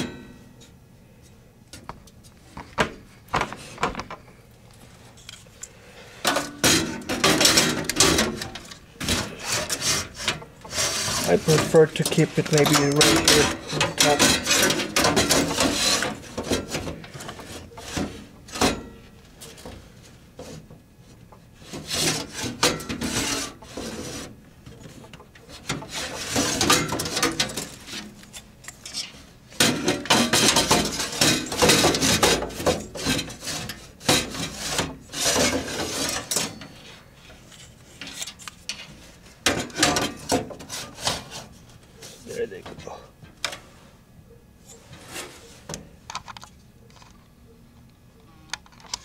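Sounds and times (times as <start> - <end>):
metal scraping on metal: 6.2 - 19.1, 21.6 - 42.6.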